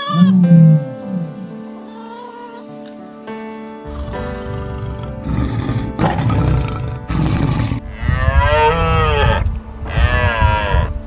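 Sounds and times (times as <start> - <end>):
deer stag calling: 0.0 - 3.0
tiger growling: 0.0 - 3.0, 3.9 - 7.9
background music: 0.0 - 11.0.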